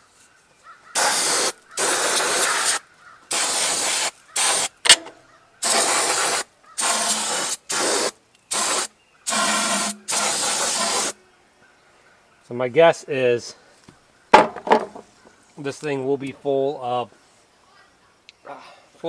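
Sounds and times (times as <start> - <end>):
aerosol can spraying: 1.0 - 5.0, 5.6 - 11.2
sharp click: 4.8 - 5.2.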